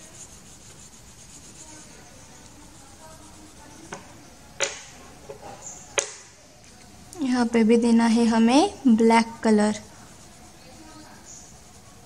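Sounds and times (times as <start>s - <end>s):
crayon rubbing on paper: 0.0s - 4.5s, 9.1s - 12.0s
crayons clicking on table: 3.8s - 4.9s.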